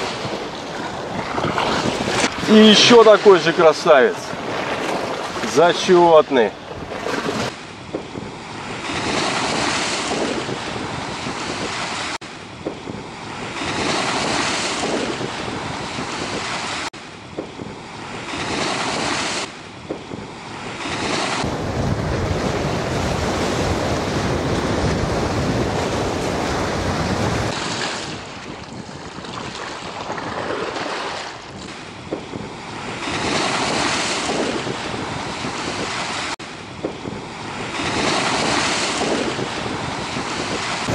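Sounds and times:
waves breaking against concrete: 0:00.0 - 0:07.6, 0:20.6 - 0:40.9
wind buffeting microphone: 0:00.0 - 0:40.9.

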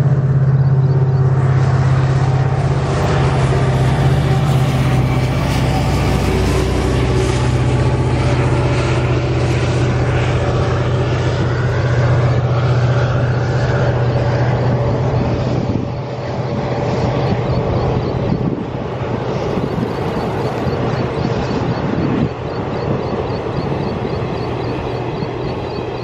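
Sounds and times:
diesel locomotive engine drone: 0:00.0 - 0:26.0
train wheels on track: 0:01.8 - 0:26.0.

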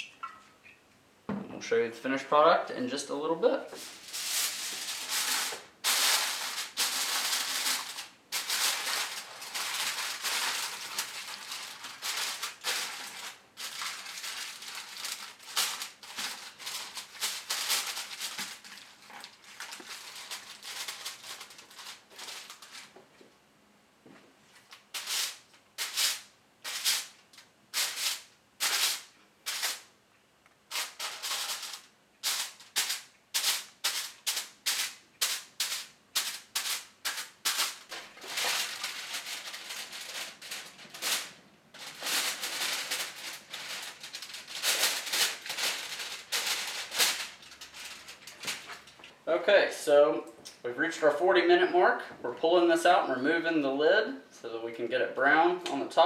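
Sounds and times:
knife piercing foil crackles: 0:03.8 - 0:23.0, 0:24.7 - 0:29.9, 0:30.7 - 0:49.0
aluminium foil crinkling: 0:03.8 - 0:23.1, 0:24.6 - 0:29.9, 0:30.7 - 0:49.2.

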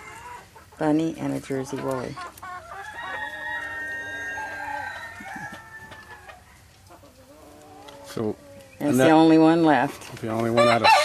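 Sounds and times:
rooster crowing: 0:02.7 - 0:06.6, 0:10.6 - 0:11.0.

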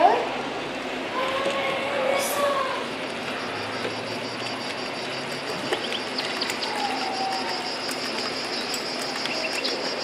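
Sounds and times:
rapid cricket-like chirping: 0:03.0 - 0:10.0.

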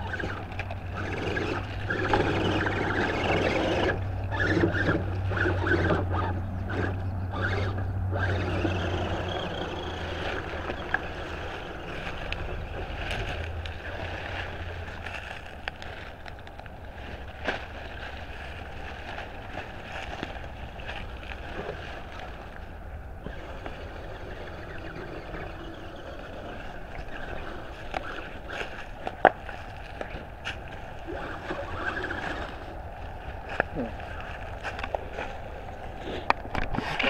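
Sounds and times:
toy truck motor whine: 0:00.0 - 0:16.0, 0:23.2 - 0:30.2, 0:31.0 - 0:34.9
wind rumble on microphone: 0:00.0 - 0:37.0
leaves crackling: 0:08.2 - 0:37.0
twigs snapping: 0:11.8 - 0:21.5.

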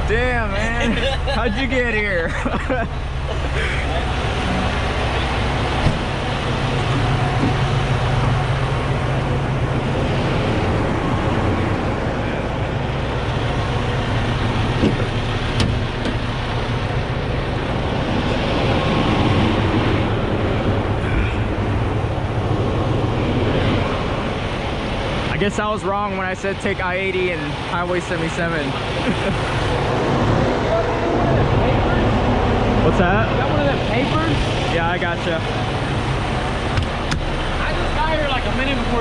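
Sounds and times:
diesel truck engines idling: 0:00.0 - 0:39.0.

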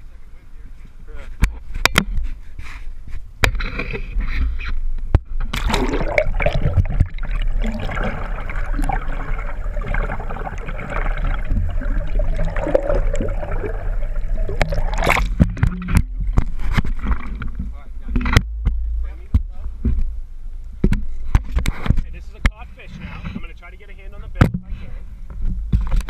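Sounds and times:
muffled underwater water rushing: 0:05.2 - 0:22.2
water splashes: 0:05.4 - 0:18.4.

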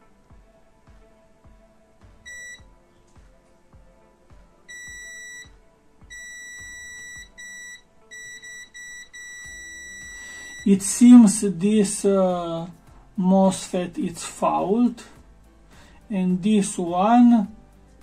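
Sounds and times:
multimeter continuity beeps: 0:02.2 - 0:02.7, 0:04.6 - 0:10.9.

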